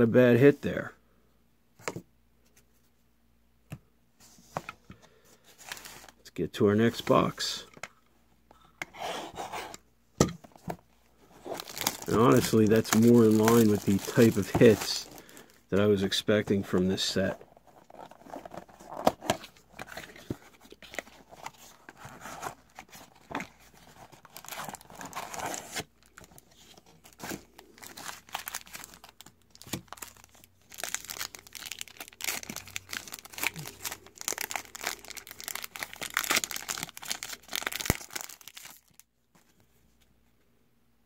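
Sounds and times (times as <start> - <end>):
foil wrappers crinkling: 11.4 - 15.7, 22.5 - 39.0.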